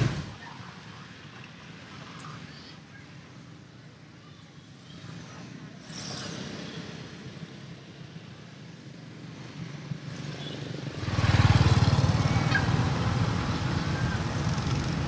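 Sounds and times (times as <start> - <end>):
background traffic: 0.0 - 15.0
vehicle rumbling close by: 10.9 - 15.0.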